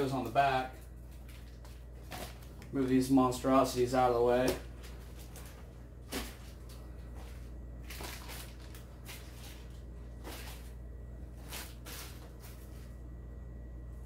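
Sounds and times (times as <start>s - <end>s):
plastic bags rustling and crinkling: 0.5s - 2.8s, 4.3s - 13.0s.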